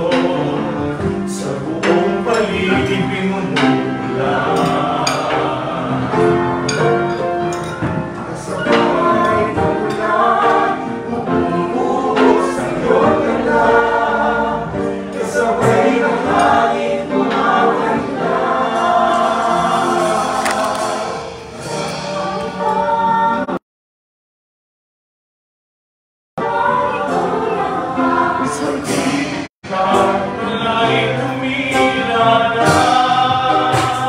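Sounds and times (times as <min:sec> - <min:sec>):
people singing in chorus: 0:00.0 - 0:23.6, 0:26.4 - 0:34.0
sharp percussion hits: 0:14.8 - 0:22.9, 0:26.7 - 0:34.0.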